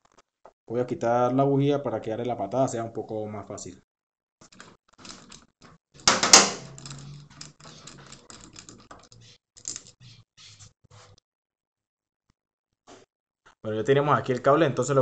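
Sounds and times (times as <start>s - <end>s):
light clicks and scrapes: 6.7s - 11.2s.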